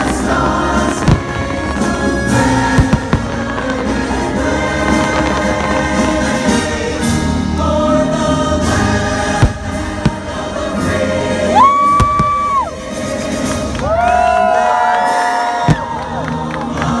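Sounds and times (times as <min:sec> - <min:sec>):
firework bangs: 0:00.0 - 0:07.0, 0:09.1 - 0:10.9
choir singing: 0:00.0 - 0:17.0
orchestral music: 0:00.0 - 0:17.0.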